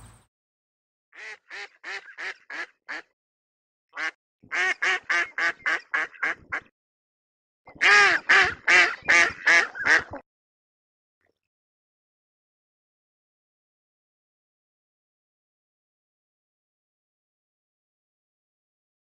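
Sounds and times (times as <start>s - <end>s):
waterfowl quacking: 1.2s - 3.1s, 4.0s - 6.7s, 7.7s - 10.2s.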